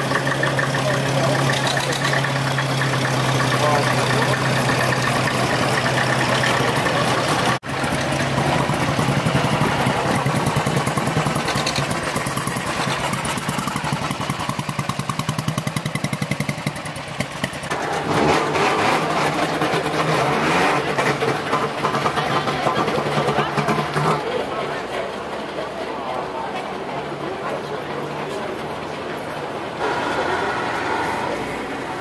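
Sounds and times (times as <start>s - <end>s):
motorcycle engine idling: 0.0s - 17.9s
old vehicle engines idling: 0.0s - 32.0s.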